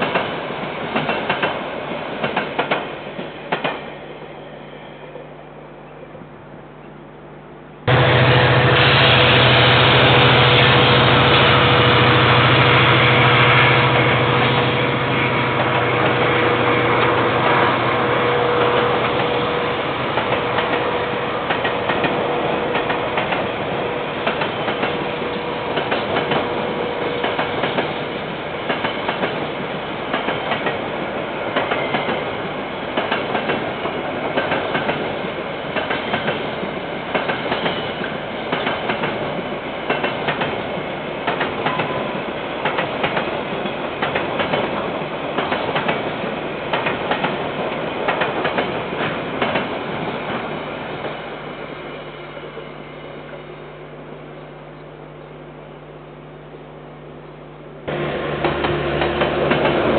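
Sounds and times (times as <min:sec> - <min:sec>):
train wheels clicking over joints: 0:00.9 - 0:01.6, 0:14.4 - 0:51.2, 0:57.9 - 0:59.9
steady whine: 0:04.0 - 0:29.0.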